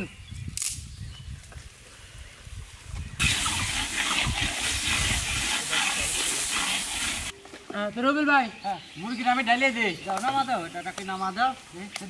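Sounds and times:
paste sizzling in hot oil: 0:03.2 - 0:07.4.

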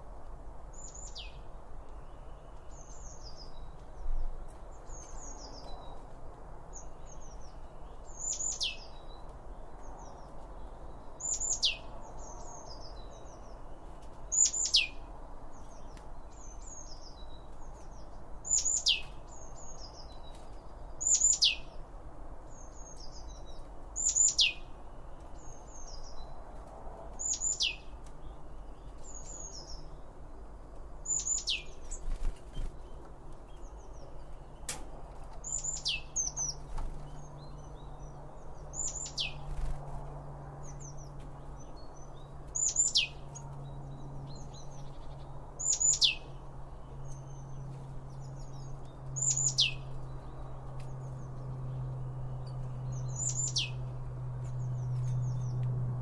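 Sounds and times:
soft bird chirps: 0:30.7 - 0:39.8, 0:40.6 - 0:55.7.

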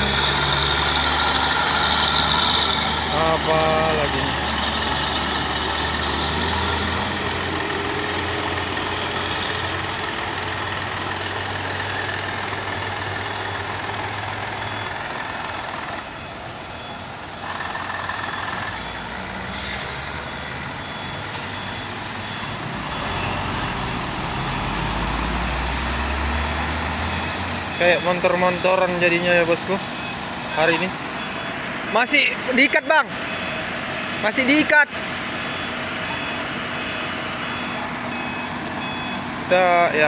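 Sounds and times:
truck diesel engines: 0:00.0 - 0:40.0
air brake hiss: 0:19.5 - 0:20.4
faint high beep: 0:29.9 - 0:32.0, 0:32.7 - 0:39.2.

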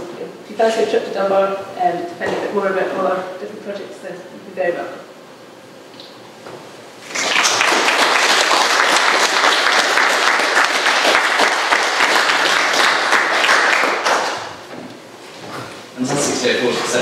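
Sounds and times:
audience applauding: 0:07.0 - 0:14.6.

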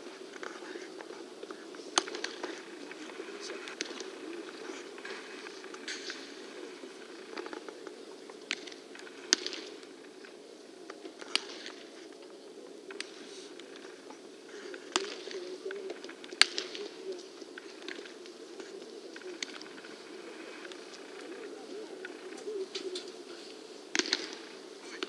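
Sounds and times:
baseballs popping into gloves: 0:02.0 - 0:03.0, 0:08.5 - 0:09.9, 0:23.9 - 0:24.4.

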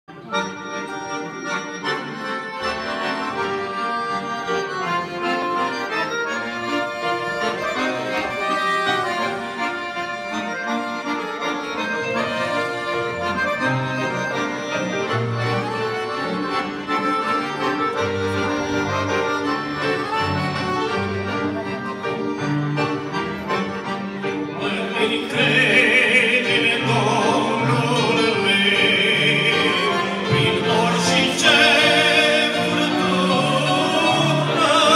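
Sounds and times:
accordions playing a melody: 0:00.1 - 0:34.9
men singing: 0:24.6 - 0:34.9.

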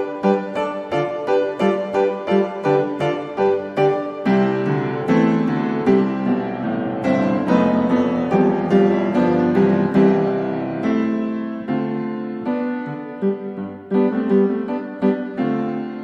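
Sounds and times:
slow gentle piano music: 0:00.0 - 0:16.0.

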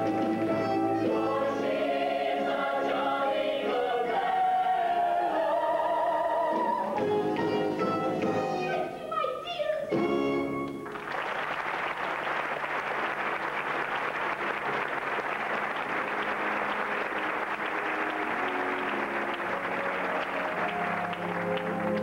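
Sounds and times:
audience applause: 0:10.8 - 0:22.0
held orchestra notes: 0:17.7 - 0:22.0.

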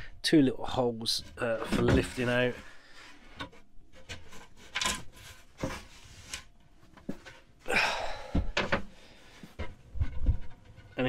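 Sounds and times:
scraping rustle: 0:01.0 - 0:07.6
wooden knocks and scrapes: 0:01.1 - 0:07.5, 0:08.3 - 0:11.0.

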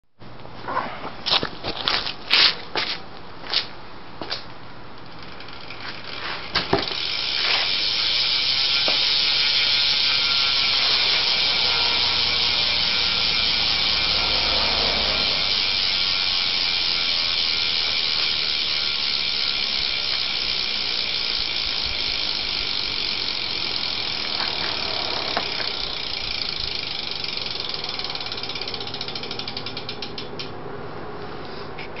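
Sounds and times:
bike wheel clicks: 0:04.2 - 0:30.6
bike hub ratcheting buzz: 0:04.8 - 0:30.6.

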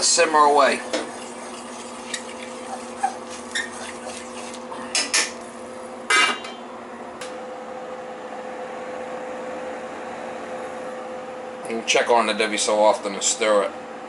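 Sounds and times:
spoon scraping saucepan: 0:00.8 - 0:05.3.

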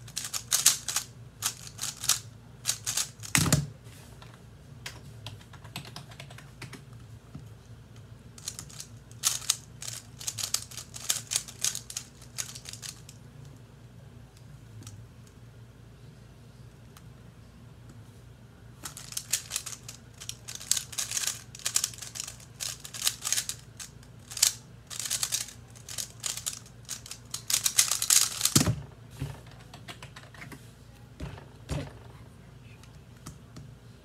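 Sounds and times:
puzzle cube clicking rapidly: 0:00.1 - 0:03.3, 0:05.3 - 0:06.8, 0:08.4 - 0:13.2, 0:18.8 - 0:28.6
cube thump: 0:02.9 - 0:03.7, 0:27.5 - 0:29.4.

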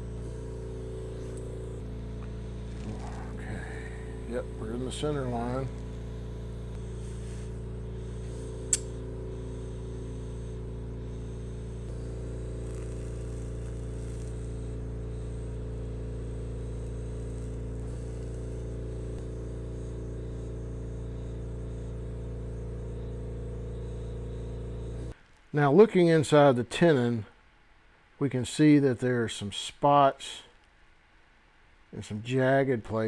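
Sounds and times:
low machine hum: 0:00.0 - 0:27.3
sharp click: 0:08.7 - 0:09.0.

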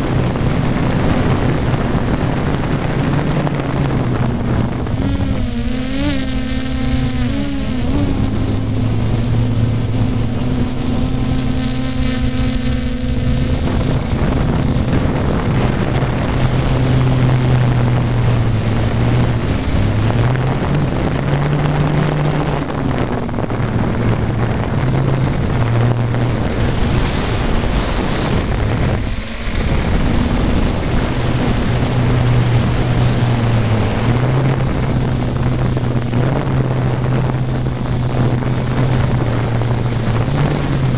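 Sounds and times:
drone propellers whirring: 0:00.0 - 0:40.9
high whine: 0:00.0 - 0:40.9.

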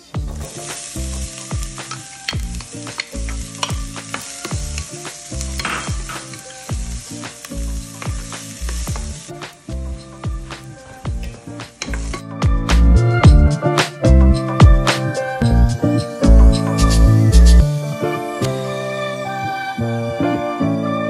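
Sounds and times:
onions sizzling in oil: 0:00.0 - 0:13.1
low rhythmic music: 0:00.0 - 0:21.0.

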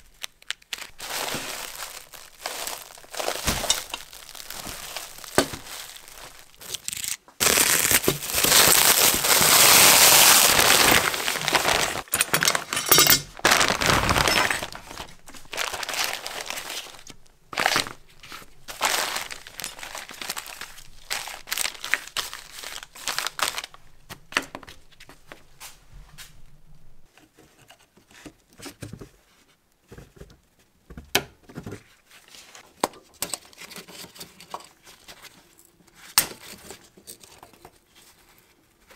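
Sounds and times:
plastic wrap crinkling: 0:00.0 - 0:25.6.

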